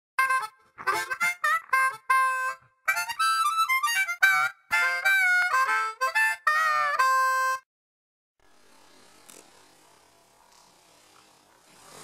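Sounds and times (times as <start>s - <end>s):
solo instrumental melody: 0.2s - 7.6s.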